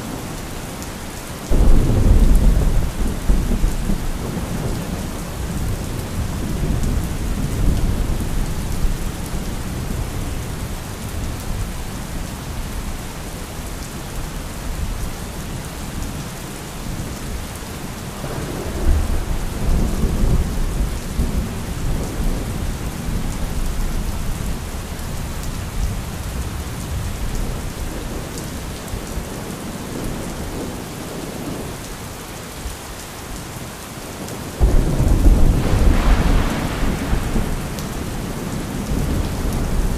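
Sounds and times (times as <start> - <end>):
steady rain: 0.0 - 39.9
loud thunderclap: 1.5 - 8.4, 34.6 - 39.9
thunder rumbling: 1.5 - 11.3, 18.2 - 23.9, 34.6 - 39.9.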